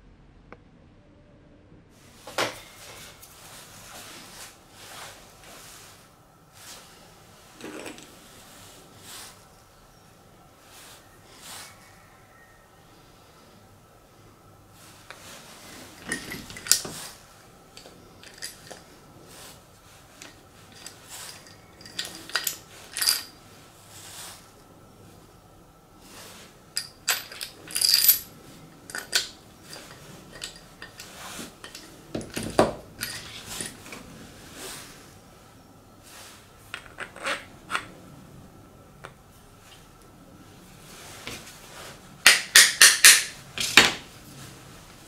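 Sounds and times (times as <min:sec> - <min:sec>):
knobs clicking and clattering: 0:16.0 - 0:17.0, 0:20.2 - 0:23.3, 0:26.8 - 0:33.9.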